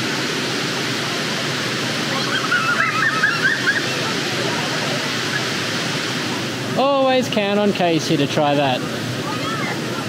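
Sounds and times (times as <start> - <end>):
waterfall rushing over rock: 0.0 - 10.0
high wavering calls: 2.1 - 4.1.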